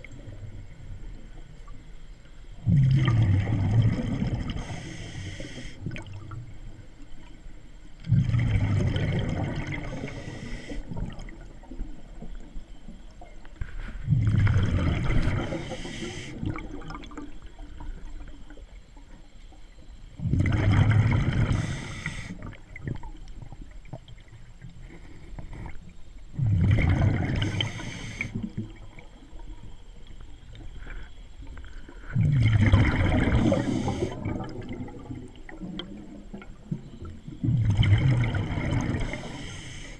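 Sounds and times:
scuba regulator exhalation bubbles: 0:02.6 - 0:05.1, 0:08.0 - 0:11.3, 0:14.0 - 0:17.3, 0:20.2 - 0:23.0, 0:26.4 - 0:28.8, 0:32.0 - 0:36.4, 0:37.4 - 0:39.6.

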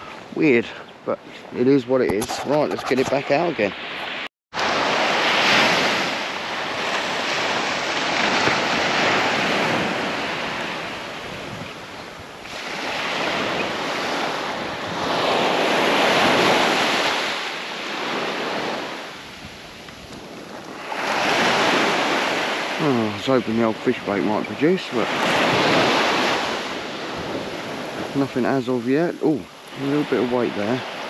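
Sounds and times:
wind buffeting microphone: 0:01.2 - 0:31.0
surf breaking on beach: 0:01.6 - 0:31.0.

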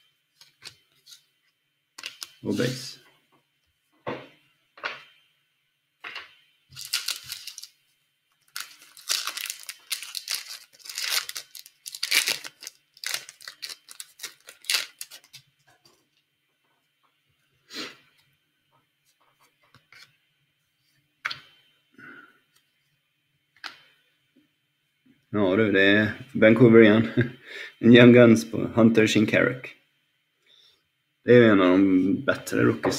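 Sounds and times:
foil wrapper tearing and crinkling: 0:02.0 - 0:02.3, 0:06.8 - 0:07.7, 0:08.5 - 0:15.4
cards being handled: 0:02.0 - 0:02.7, 0:06.8 - 0:07.7, 0:08.5 - 0:15.5.

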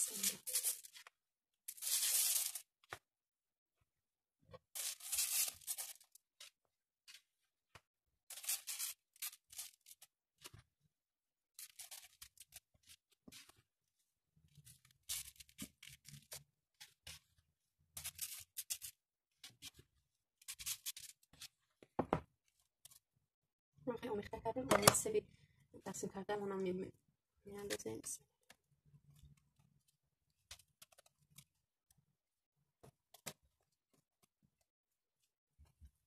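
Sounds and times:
spatula scraping dry mixture: 0:11.6 - 0:21.7.

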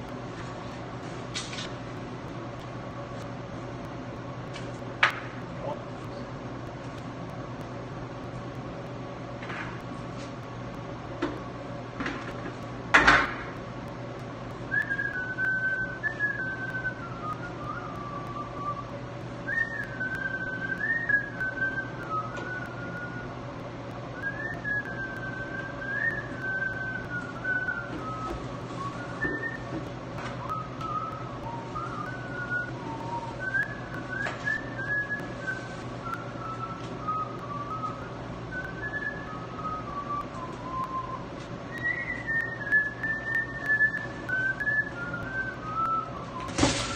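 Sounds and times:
steady low hum: 0:00.0 - 0:46.9
person whistling a tune: 0:14.7 - 0:18.9, 0:19.5 - 0:23.3, 0:24.2 - 0:46.9.

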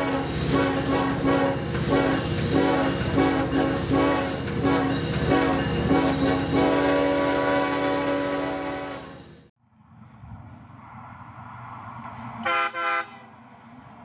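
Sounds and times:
train horn blasts: 0:00.0 - 0:09.4, 0:12.4 - 0:13.4.

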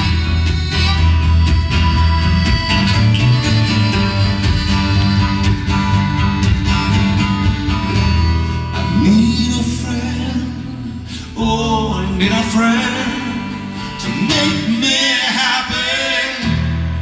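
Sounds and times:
plucked strings: 0:00.0 - 0:09.8
steady held notes: 0:00.0 - 0:17.0
strummed acoustic guitar: 0:00.0 - 0:17.0
upright bass: 0:00.0 - 0:17.0.

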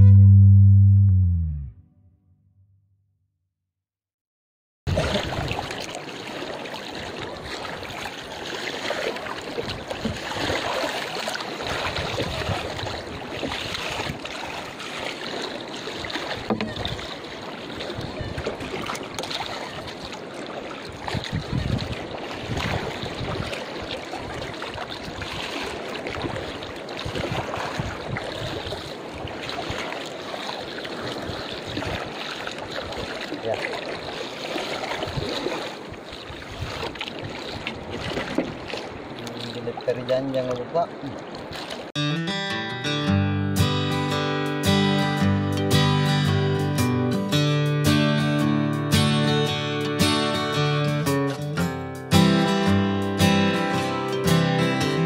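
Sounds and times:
paddle pulling through water: 0:04.9 - 0:42.0
water splashing against canoe: 0:04.9 - 0:42.0.

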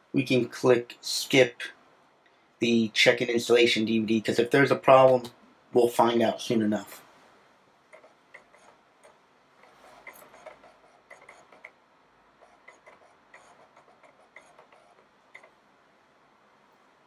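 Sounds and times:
disk drive ticking and clicking: 0:07.9 - 0:11.8, 0:12.4 - 0:15.6.

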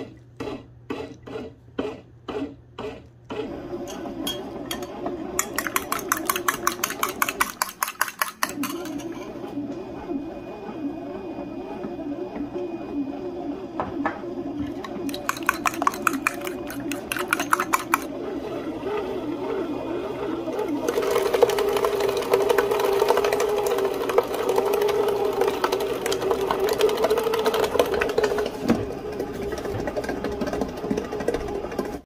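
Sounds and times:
bread machine motor humming: 0:00.0 - 0:32.0
fork clinking in ceramic bowl: 0:03.9 - 0:09.3.

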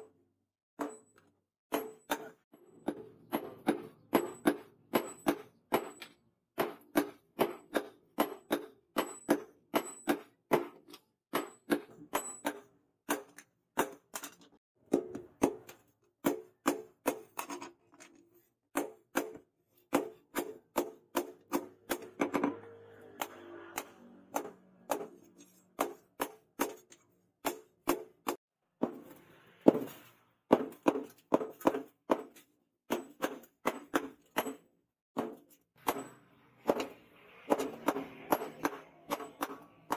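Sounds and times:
hammer striking hot steel on anvil: 0:00.8 - 0:14.0, 0:35.2 - 0:39.9.

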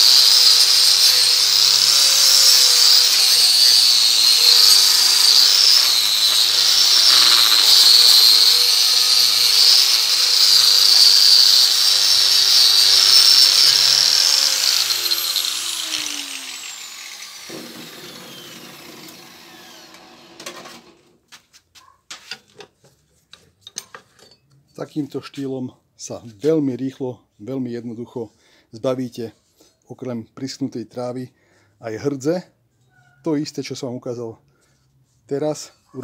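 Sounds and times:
angle grinder on steel: 0:00.0 - 0:21.0.

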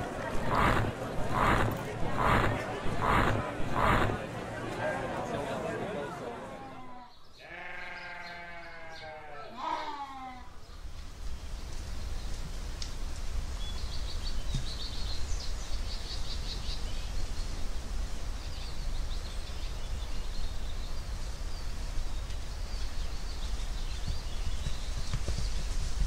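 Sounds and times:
small birds chirping: 0:00.0 - 0:04.3, 0:13.4 - 0:26.0
deep rumble: 0:00.0 - 0:04.6.

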